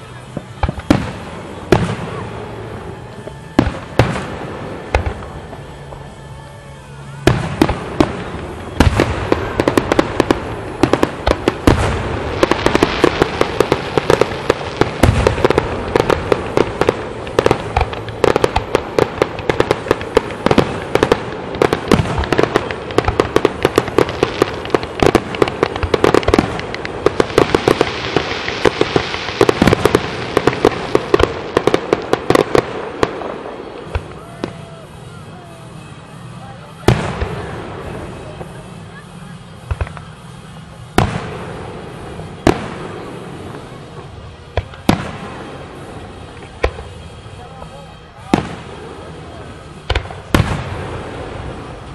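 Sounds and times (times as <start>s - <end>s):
firework bangs: 0.0s - 51.9s
firework crackling: 0.0s - 51.9s.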